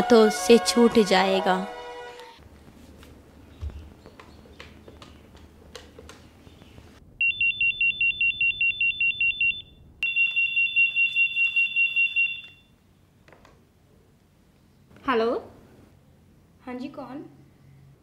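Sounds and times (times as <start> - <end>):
telephone ringing: 7.2 - 12.7.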